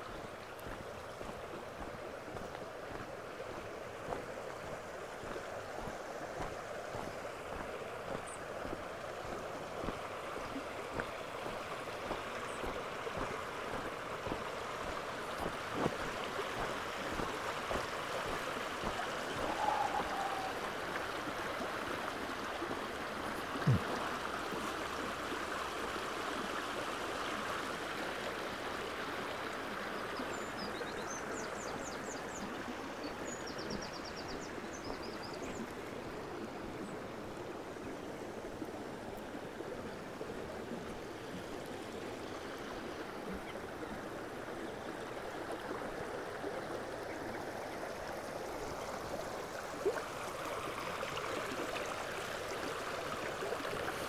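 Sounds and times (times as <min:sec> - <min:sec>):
stream babbling over stones: 0:00.0 - 0:54.0
bird chirps: 0:19.4 - 0:20.6.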